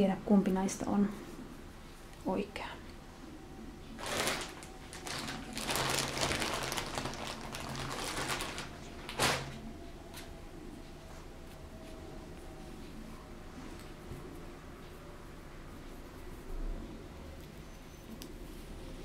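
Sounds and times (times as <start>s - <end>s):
rustling handling noise: 4.0s - 10.4s.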